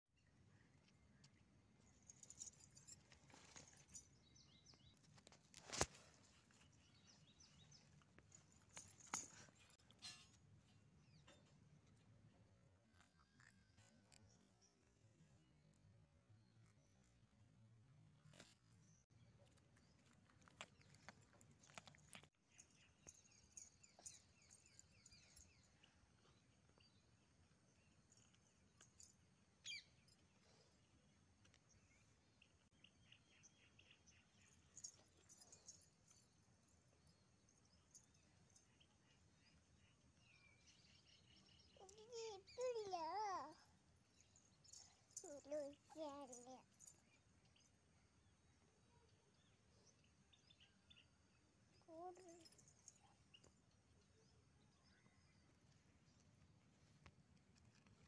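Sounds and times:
faint bird chirps: 18.3s - 48.1s, 48.8s - 57.1s.

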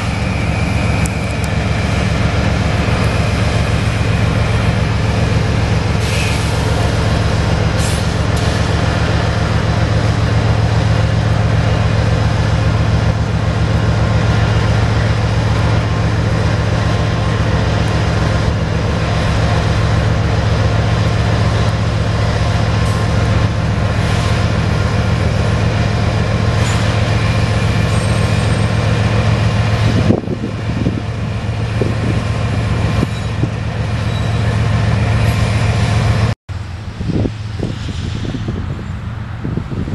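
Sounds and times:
diesel locomotive throbbing: 0.0s - 39.9s.

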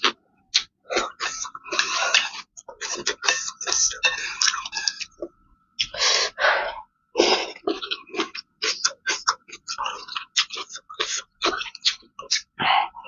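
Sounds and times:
breathy sounds: 5.8s - 7.7s, 12.6s - 13.0s.

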